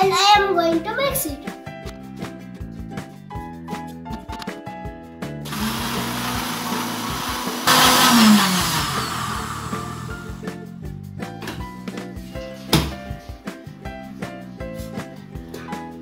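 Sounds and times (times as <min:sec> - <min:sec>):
electric mixer-grinder motor humming: 0:05.5 - 0:10.4.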